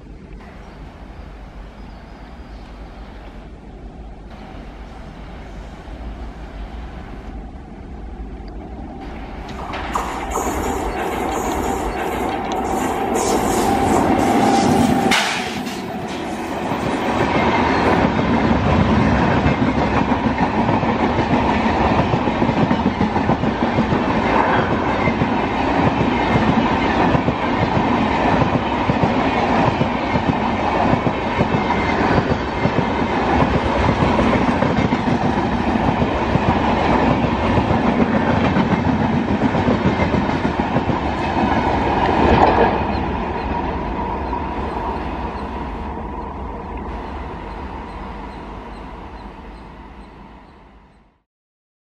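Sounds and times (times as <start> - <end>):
train wheels clattering over rail joints: 9.5 - 41.1.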